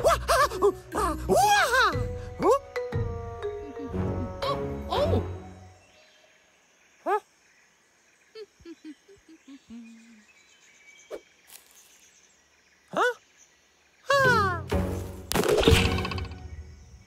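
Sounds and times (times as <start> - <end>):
faint jungle ambience: 0.0 - 17.0
cartoon monkey vocal calls: 7.0 - 7.3.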